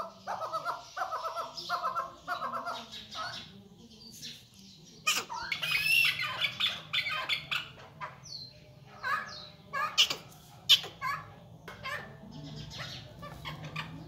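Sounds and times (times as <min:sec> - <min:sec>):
partridges chattering squawks: 0:05.0 - 0:14.0.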